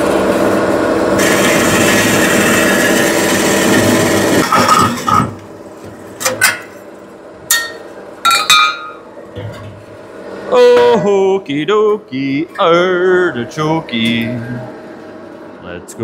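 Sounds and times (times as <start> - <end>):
saw motor hum: 0.0 - 5.4.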